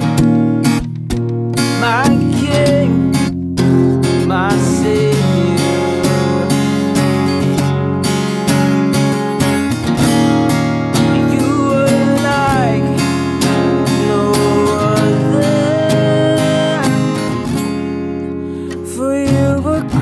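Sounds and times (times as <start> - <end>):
acoustic guitar strumming: 0.0 - 20.0
man singing: 1.6 - 7.6, 10.9 - 17.8, 18.5 - 20.0.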